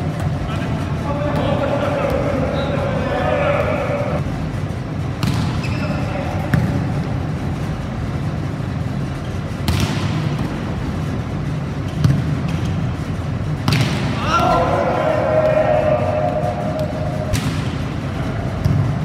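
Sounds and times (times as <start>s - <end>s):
steady hum of hall: 0.0s - 19.0s
volleyball being struck: 5.2s - 5.8s, 9.6s - 10.6s, 13.6s - 14.4s, 16.4s - 18.0s.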